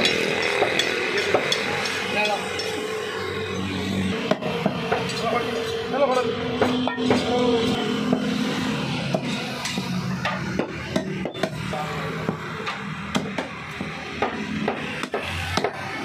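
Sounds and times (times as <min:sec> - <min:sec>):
cleaver chopping meat on wood: 0:10.3 - 0:11.6, 0:12.3 - 0:16.0.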